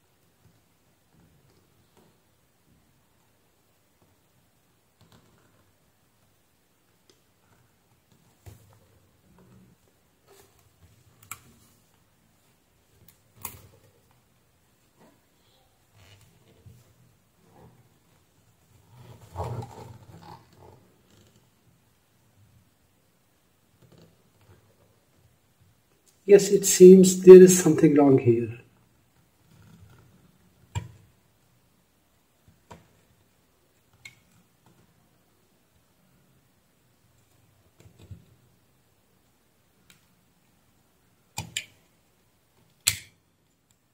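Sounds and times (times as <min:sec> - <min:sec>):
knife cutting rubber clicks: 0:42.8 - 0:43.1.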